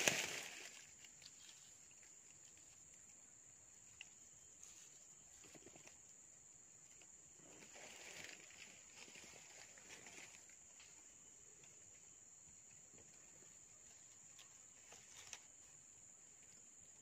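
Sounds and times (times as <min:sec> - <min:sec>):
rustles in leaf litter: 0:00.0 - 0:02.0.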